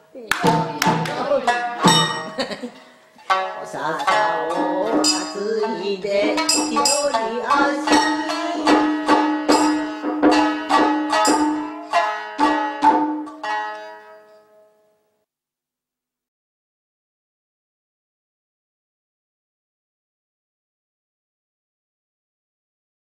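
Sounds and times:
person singing: 0:00.0 - 0:12.6
shamisen plucking: 0:00.0 - 0:15.0.

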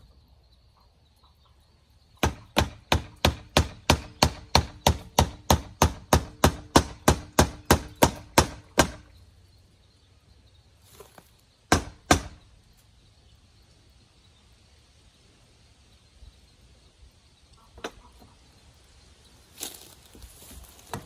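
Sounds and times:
hammer driving nails into wood: 0:02.2 - 0:09.1, 0:11.7 - 0:12.4.

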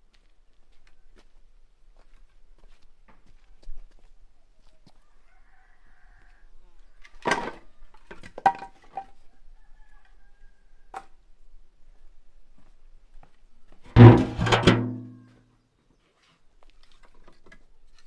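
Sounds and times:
rooster crowing: 0:05.0 - 0:06.6, 0:09.3 - 0:11.1
firewood knocking and clattering: 0:14.0 - 0:15.1.

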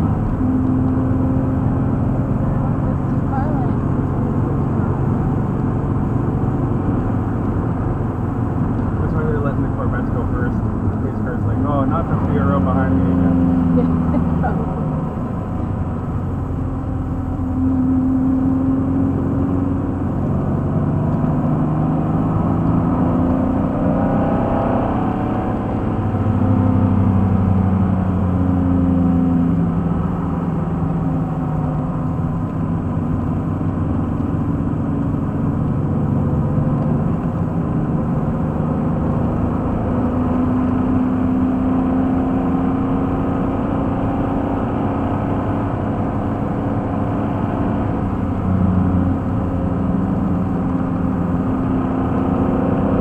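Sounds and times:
car engine revving: 0:00.0 - 0:53.0
road and wind noise: 0:00.0 - 0:53.0.

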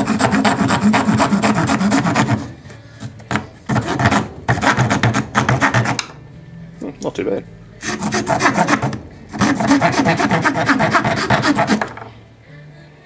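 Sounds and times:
hand saw cutting wood: 0:00.0 - 0:02.5, 0:03.7 - 0:06.1, 0:07.8 - 0:12.0.

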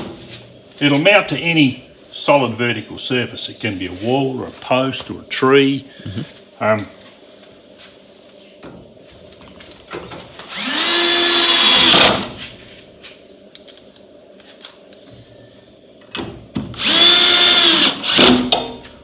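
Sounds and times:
cordless drill whining: 0:10.5 - 0:12.2, 0:16.8 - 0:18.4.

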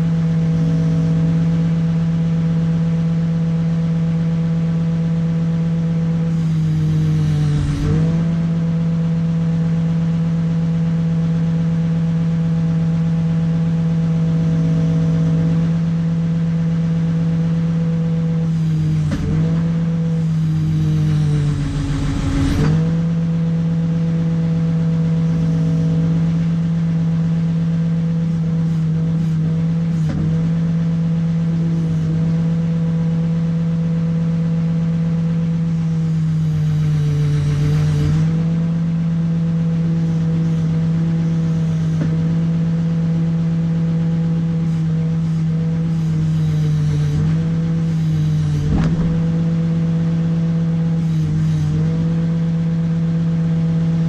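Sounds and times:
diesel engine running: 0:05.9 - 0:10.6, 0:17.6 - 0:32.4, 0:44.4 - 0:52.2.

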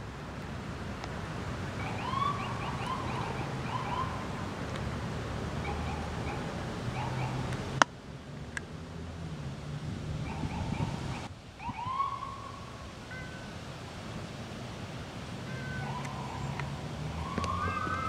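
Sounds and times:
distant high swooping call: 0:01.8 - 0:04.2, 0:05.6 - 0:07.5, 0:15.4 - 0:18.0.

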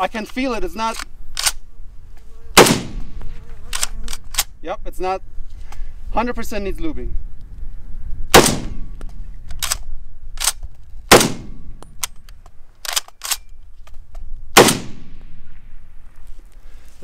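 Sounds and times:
rifle action metallic clacks: 0:00.2 - 0:01.6, 0:03.7 - 0:04.5, 0:08.4 - 0:14.9
rifle shots echoing: 0:02.6 - 0:03.2, 0:08.3 - 0:08.9, 0:10.4 - 0:11.8, 0:14.5 - 0:15.4.

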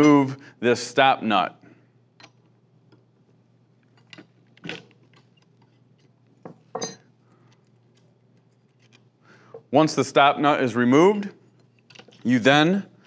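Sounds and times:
metal tools clinking: 0:06.6 - 0:07.1.

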